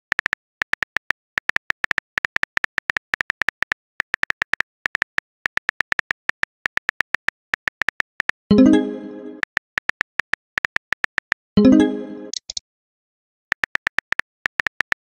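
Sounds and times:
keyboard typing clicks: 9.3 - 12.6.

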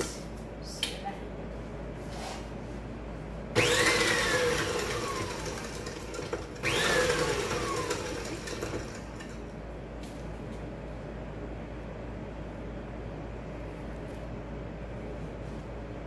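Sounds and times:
stand mixer motor whine: 3.6 - 9.4.

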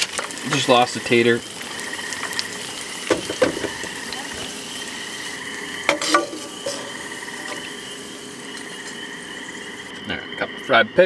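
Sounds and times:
oil sizzling in a pan: 0.0 - 10.2
faint high whine: 3.6 - 11.0
metal skimmer clinking on pan: 5.9 - 7.6.

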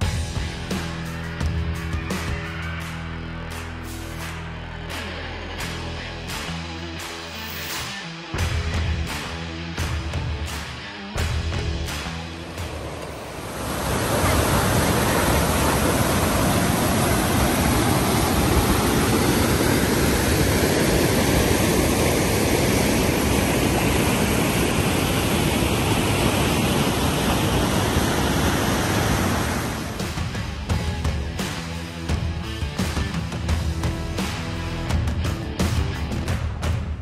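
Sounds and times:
whitewater rushing over boulders: 12.4 - 30.4.

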